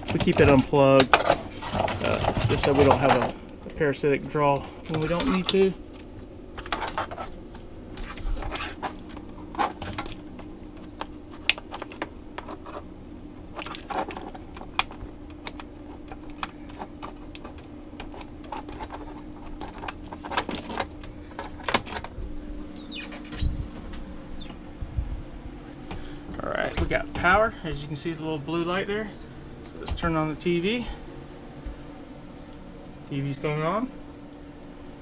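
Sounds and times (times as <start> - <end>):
vent fan humming: 0.0 - 35.0
clicks and rustles of power cord: 13.5 - 22.2.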